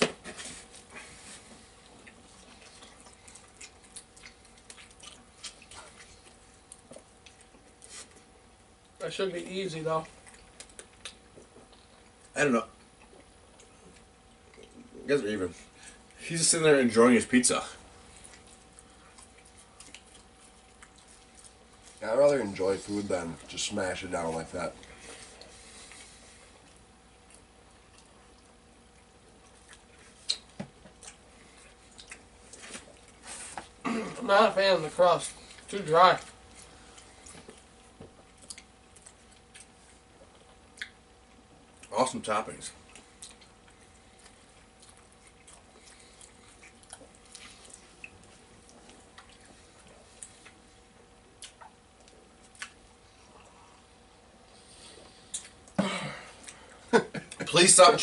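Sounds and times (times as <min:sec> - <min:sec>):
faint steady hum: 0:00.0 - 0:58.0
people chewing food: 0:00.0 - 0:58.0
small clicks and smacks: 0:10.2 - 0:12.3.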